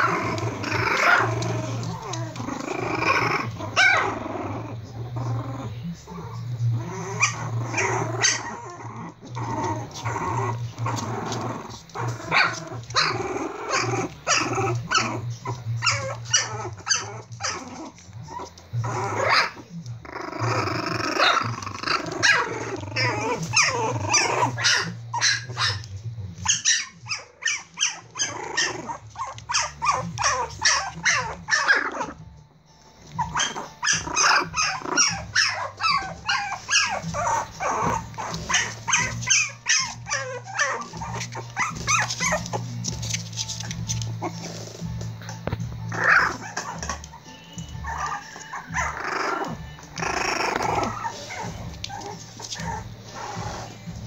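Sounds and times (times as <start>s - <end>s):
claws scrabbling on hard floor: 0.0s - 4.3s, 6.8s - 26.5s, 33.0s - 47.2s
puppies growling and yipping: 0.0s - 54.0s.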